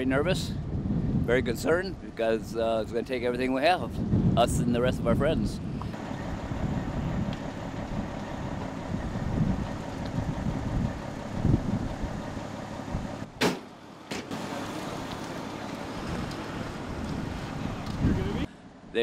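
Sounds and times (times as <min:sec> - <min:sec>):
outdoor background noise: 0:00.0 - 0:19.0
fire engine idling: 0:06.0 - 0:18.8.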